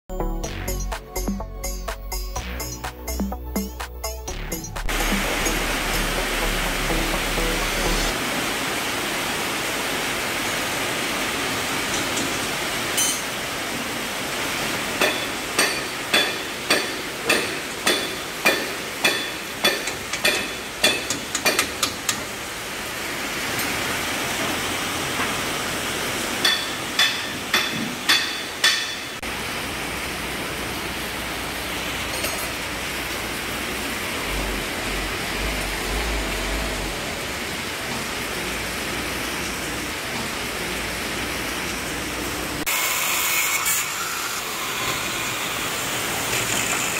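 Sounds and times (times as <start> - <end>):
heavy rain pouring: 4.8 - 19.6, 22.0 - 27.5, 29.2 - 42.7.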